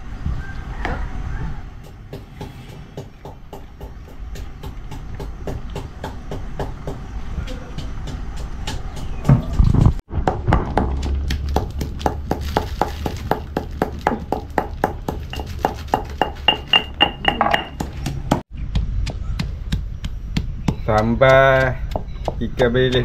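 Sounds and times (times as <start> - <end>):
hand tool knocking on food: 10.6 - 23.0.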